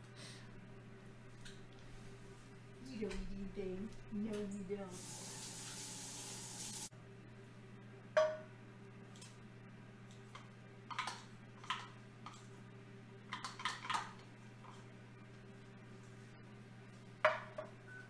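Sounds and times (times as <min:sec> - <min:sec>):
low steady hum: 0:00.0 - 0:05.8.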